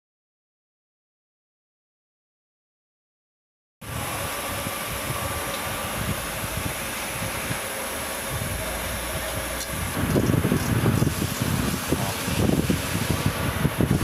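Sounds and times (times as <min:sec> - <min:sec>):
uneven low rumbling: 0:03.8 - 0:14.0
workshop machinery hiss and hum: 0:03.8 - 0:14.0.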